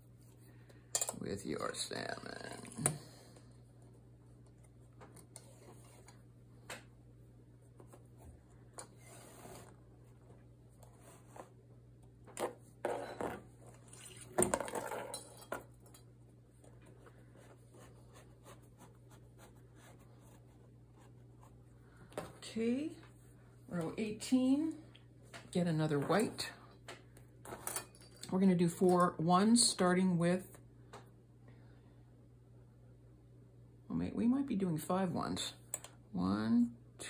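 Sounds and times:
faint steady hum: 0.0s - 37.0s.

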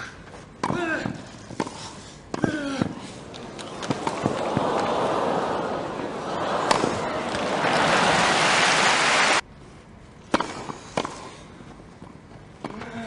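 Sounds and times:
crowd applause and cheering: 3.2s - 9.4s.

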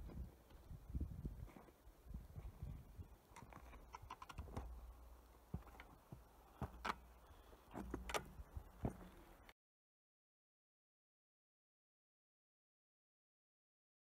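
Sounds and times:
wind rumble on microphone: 0.0s - 3.6s.

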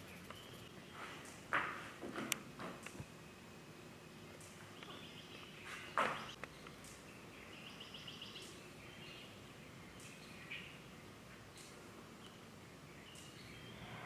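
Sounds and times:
faint bird chirps: 3.2s - 14.0s.

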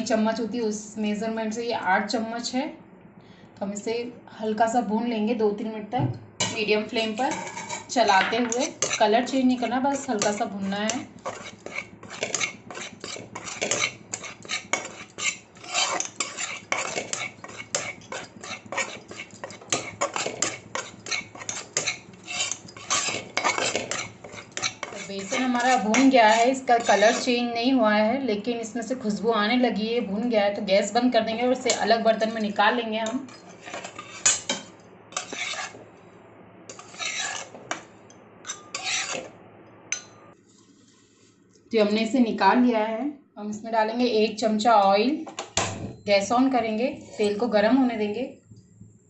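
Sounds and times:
metal spatula scraping dry flour: 7.0s - 27.5s, 31.6s - 35.8s, 36.7s - 37.7s, 38.5s - 39.3s, 46.7s - 47.5s.

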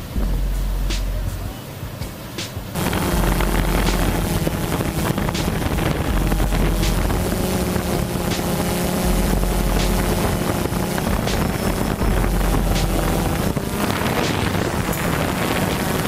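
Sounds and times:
wind noise on microphone: 0.0s - 16.0s
boat diesel engines droning: 2.8s - 16.0s.

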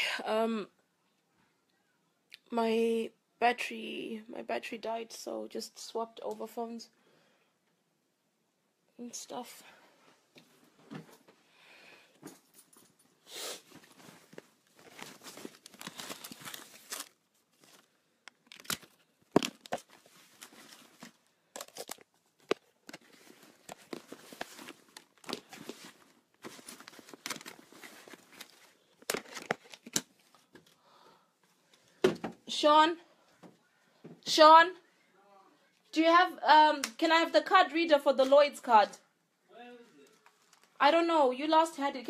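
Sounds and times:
phone handling rustling: 13.8s - 30.8s.

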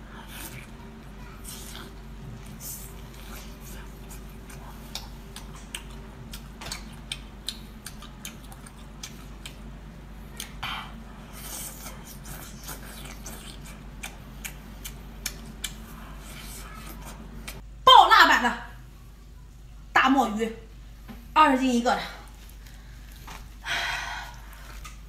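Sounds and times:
steady low hum: 0.0s - 25.0s
chewing and wet mouth clicks: 4.0s - 9.7s, 11.8s - 15.9s.

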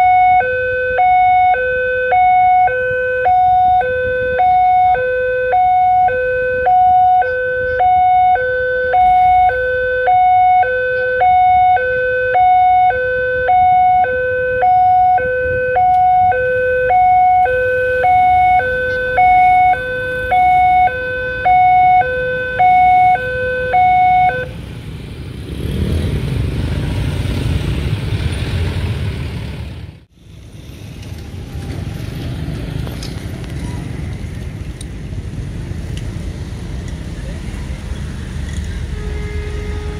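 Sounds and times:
two-tone level crossing alarm: 0.0s - 24.5s
road traffic with motorcycles: 0.0s - 39.9s.

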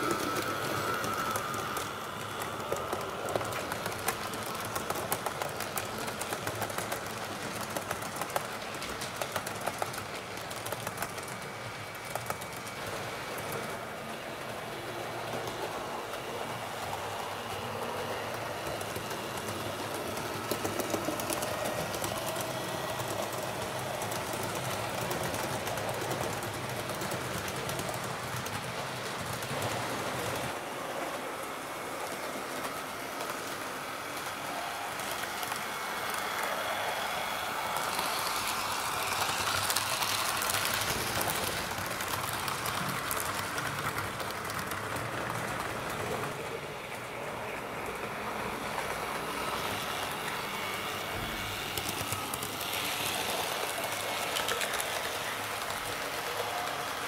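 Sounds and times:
model train running: 0.0s - 57.0s
wheels clicking over rails: 0.0s - 57.0s.

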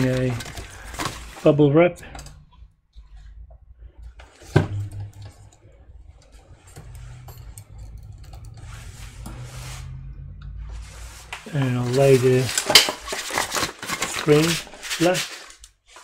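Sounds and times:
bubble wrap rustling and crinkling: 10.9s - 16.0s.

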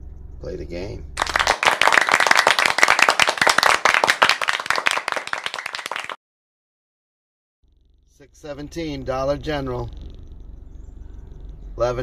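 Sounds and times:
applause: 1.2s - 6.2s.

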